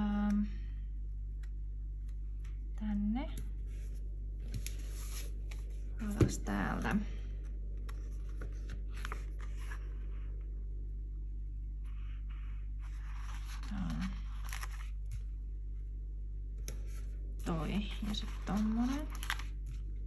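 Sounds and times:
steady low hum: 0.0 - 20.0
paper rustling: 3.6 - 6.2, 7.8 - 10.4, 12.3 - 15.3, 16.8 - 20.0.

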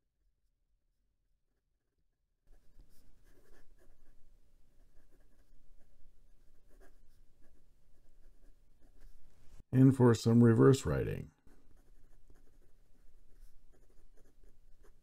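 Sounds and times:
pen nib scratching on paper: 2.5 - 9.3, 11.4 - 15.0.

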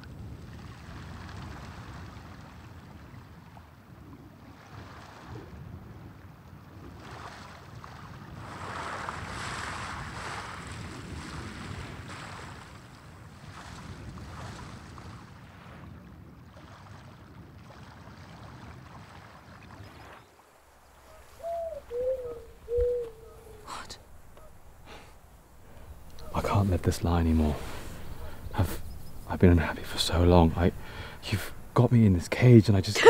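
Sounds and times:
wind: 0.0 - 33.0
lake water lapping at shore: 6.9 - 33.0.

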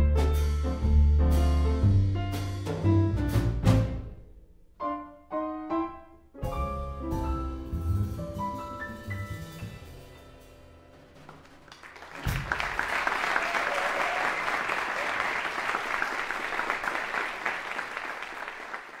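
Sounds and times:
jazz piano and double bass: 0.0 - 12.8
audience applause: 11.3 - 19.0.

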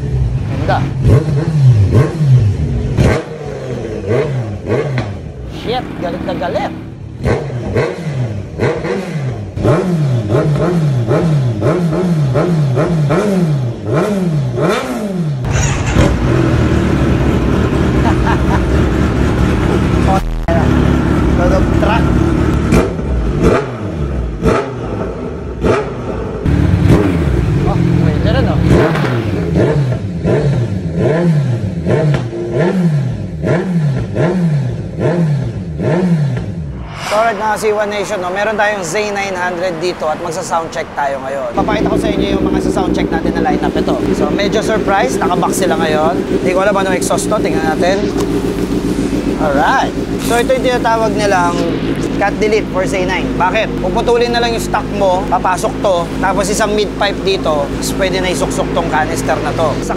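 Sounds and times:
motorcycle engine revving: 0.0 - 59.9
deep exhaust rumble: 15.4 - 23.4, 36.4 - 59.9.

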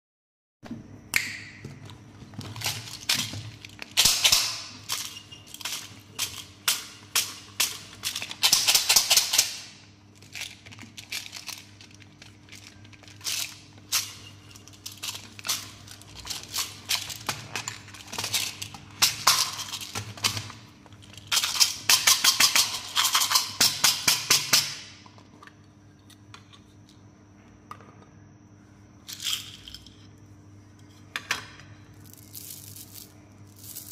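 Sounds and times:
hard candies rattling in plastic containers: 2.3 - 24.8, 32.0 - 33.9.

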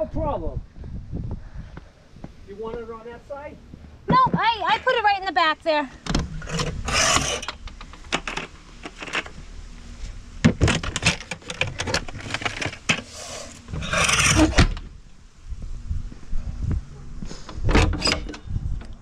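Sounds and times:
rustling scrape: 6.3 - 7.5, 11.2 - 14.6.

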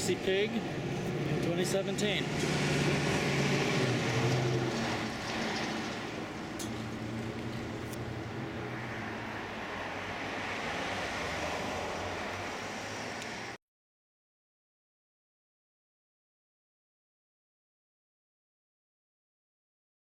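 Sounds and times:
road traffic rumble: 0.0 - 13.6.

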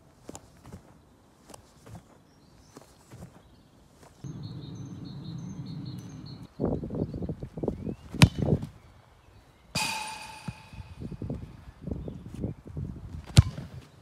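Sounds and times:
running footsteps on grass: 0.0 - 6.5
football kicks: 8.1 - 8.7, 13.2 - 13.8
ball striking metal goal frame: 9.8 - 11.4.

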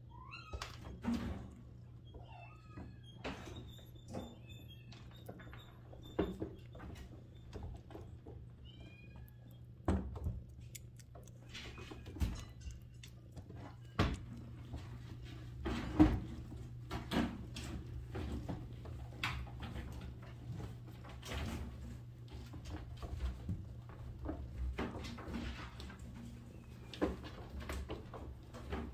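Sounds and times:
kittens squeaking: 0.0 - 0.8, 1.8 - 9.8.

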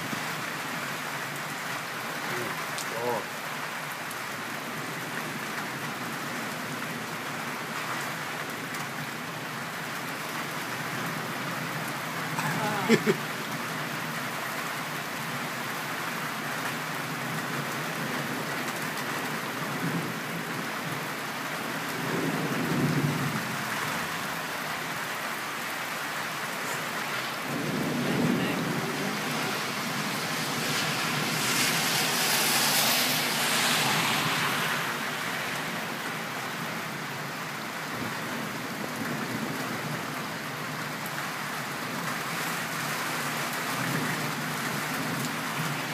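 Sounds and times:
steady rain: 0.0 - 45.9
low rolls of thunder: 27.4 - 30.1.

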